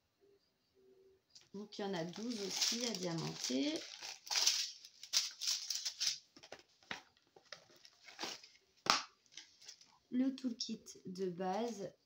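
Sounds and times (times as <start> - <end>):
plastic sachets crinkling: 1.4 - 10.0.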